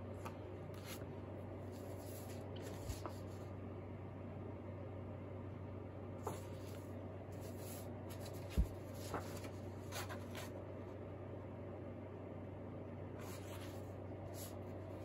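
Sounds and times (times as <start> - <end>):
steady low hum: 0.0 - 15.0
paper rustling: 0.2 - 3.5, 6.2 - 10.6, 13.2 - 15.0.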